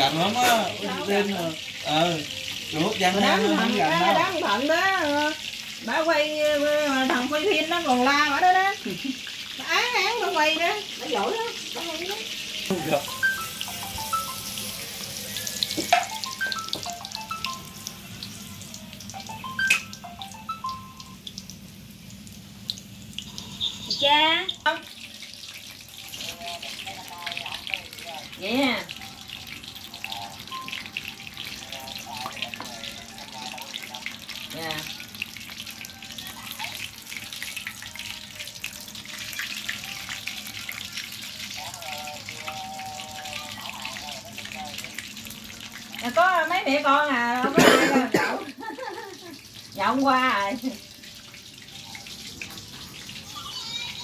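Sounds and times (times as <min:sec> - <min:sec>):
batter deep-frying in oil: 0:00.0 - 0:54.0
soft melody of falling notes: 0:12.7 - 0:21.3.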